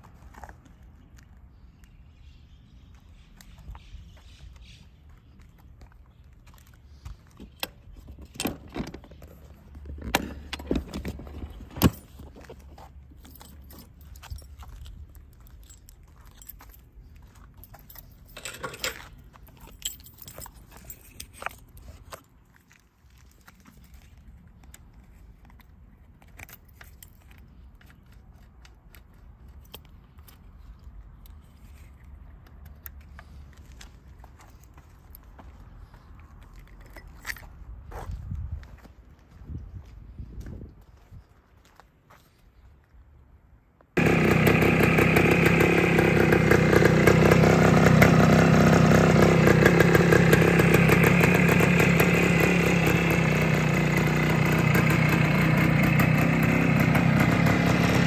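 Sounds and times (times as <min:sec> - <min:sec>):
motorcycle seat clicks and knocks: 0:09.9 - 0:12.1
keys jangling: 0:13.2 - 0:16.9, 0:17.5 - 0:22.1.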